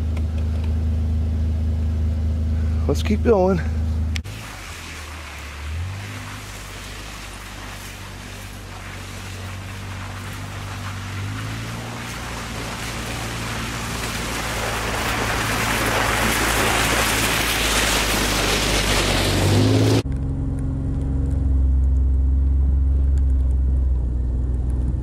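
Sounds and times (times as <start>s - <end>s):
utility vehicle engine running: 0.0s - 25.0s.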